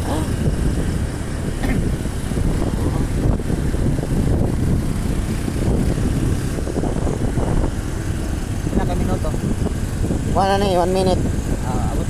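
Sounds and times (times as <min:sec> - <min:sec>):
motorcycle engine: 0:00.0 - 0:12.0
wind rushing over microphone: 0:00.0 - 0:12.0.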